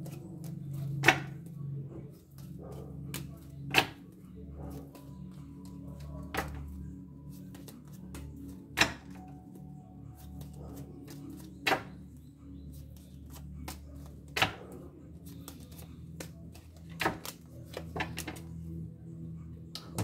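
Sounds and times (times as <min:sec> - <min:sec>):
cards riffling and clicking: 0:07.3 - 0:08.6, 0:15.2 - 0:18.6.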